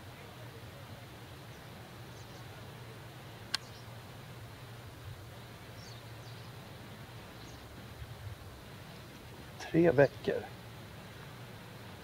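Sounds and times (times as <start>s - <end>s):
faint bird chirps: 1.4s - 2.6s, 3.5s - 3.9s, 5.4s - 6.6s, 7.2s - 7.8s
sharp click: 3.5s - 3.7s.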